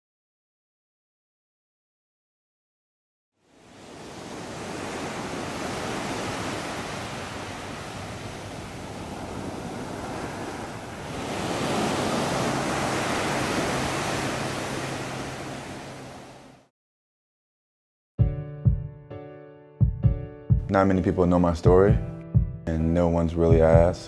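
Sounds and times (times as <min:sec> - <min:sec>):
ocean waves breaking: 0:03.4 - 0:16.7.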